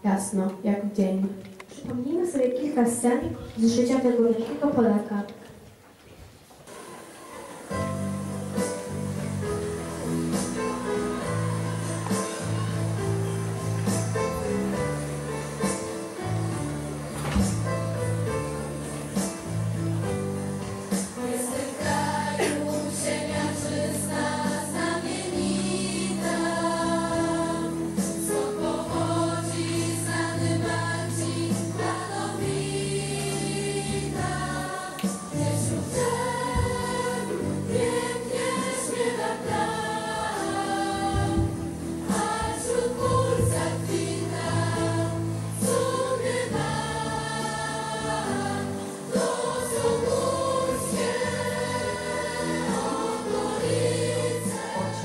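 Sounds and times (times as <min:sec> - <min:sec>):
choir singing held chords: 0:06.7 - 0:55.0.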